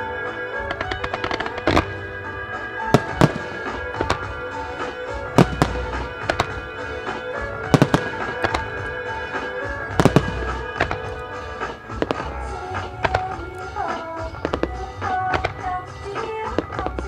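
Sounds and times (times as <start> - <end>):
fireworks bursting with sharp cracks: 0.0 - 17.0
music playing: 0.0 - 17.0.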